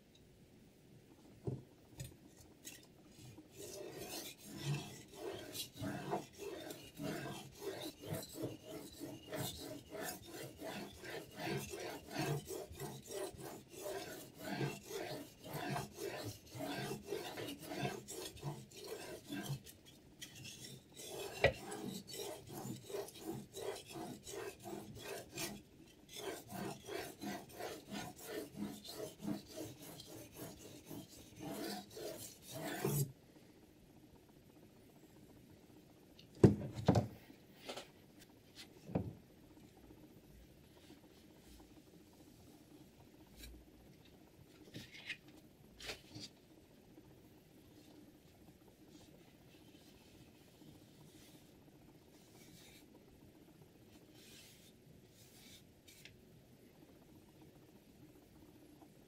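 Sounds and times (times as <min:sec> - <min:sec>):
whetstone rasping on knife edge: 0:03.8 - 0:33.0.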